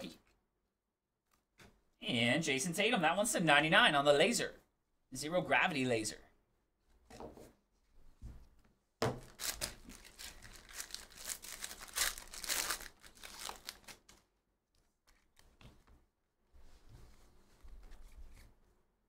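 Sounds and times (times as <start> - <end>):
foil wrapper tearing and crinkling: 9.2 - 14.2.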